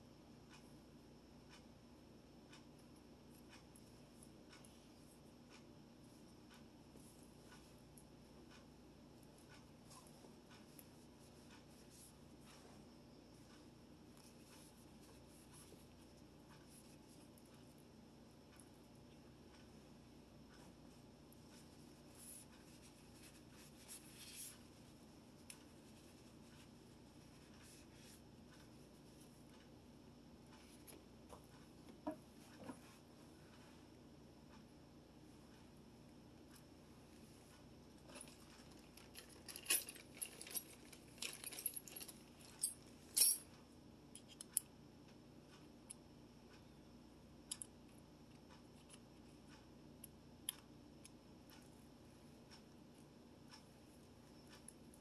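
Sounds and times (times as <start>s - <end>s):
faint scratching and rubbing: 21.5s - 25.0s
small metal hardware clinking: 38.1s - 43.5s.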